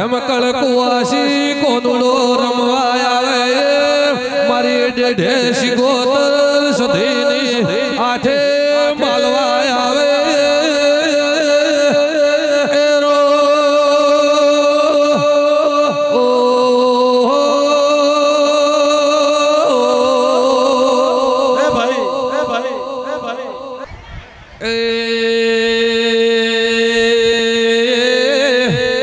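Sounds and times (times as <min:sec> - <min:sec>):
devotional chanting: 0:00.0 - 0:23.9, 0:24.6 - 0:29.0
steady held drone: 0:19.7 - 0:23.9.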